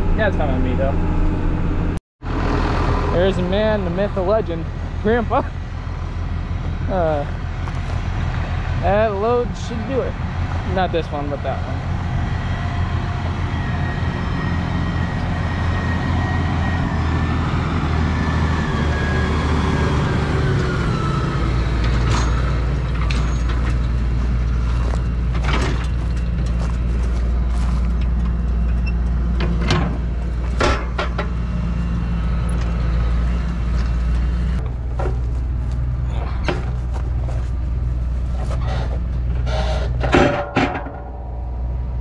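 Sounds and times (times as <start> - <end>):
tractor engine running: 0.0 - 42.0
metal clanks and knocks: 25.3 - 26.6, 27.9 - 31.4, 38.4 - 41.9.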